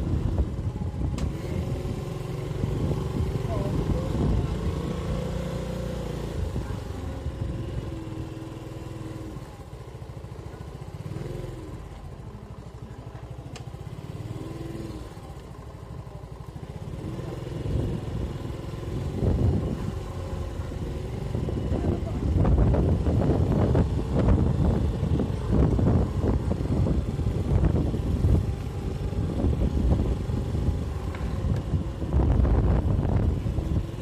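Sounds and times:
small motorcycle engine rumbling: 0.0s - 34.0s.

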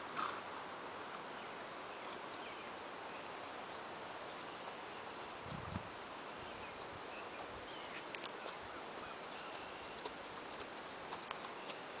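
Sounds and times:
outdoor background noise: 0.0s - 12.0s
hoofbeats on gravel: 7.9s - 12.0s.

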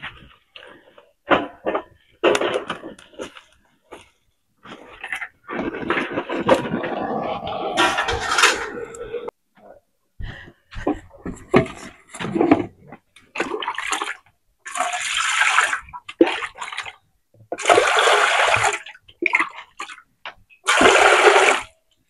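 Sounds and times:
water pouring into metal basin: 13.4s - 16.9s, 17.6s - 19.9s, 20.6s - 21.7s.

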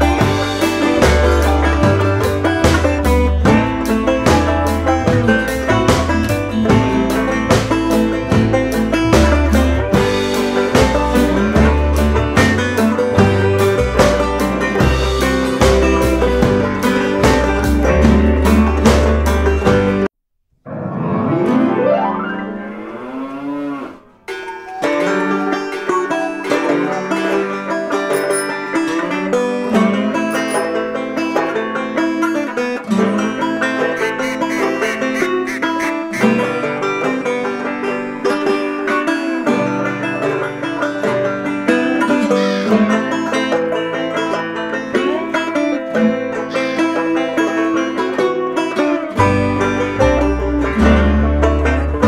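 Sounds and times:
picked string tune: 0.0s - 20.1s, 20.7s - 52.0s
wavering sliding string tone: 21.1s - 52.0s.

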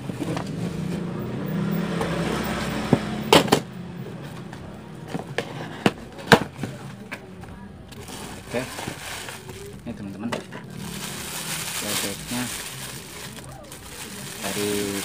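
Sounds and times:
vehicle engine running: 7.8s - 15.0s.

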